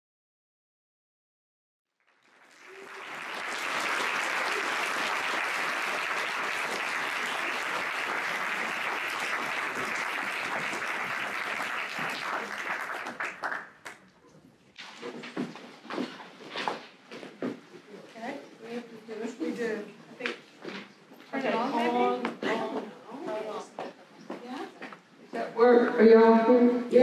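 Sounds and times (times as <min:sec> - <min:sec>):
audience applauding: 0:02.0 - 0:14.1.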